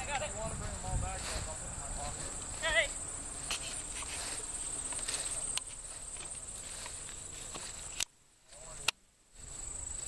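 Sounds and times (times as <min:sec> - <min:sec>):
crickets trilling: 0:00.0 - 0:10.0
footsteps through grass: 0:00.0 - 0:10.0.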